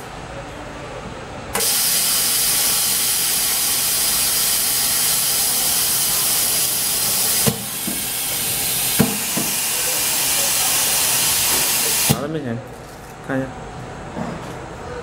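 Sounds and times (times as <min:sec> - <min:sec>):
laminating machine air hiss: 0:01.6 - 0:12.2.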